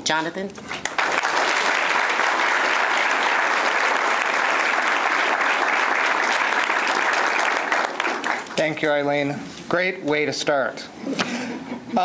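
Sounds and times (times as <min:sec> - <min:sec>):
audience applause: 0:00.7 - 0:08.8.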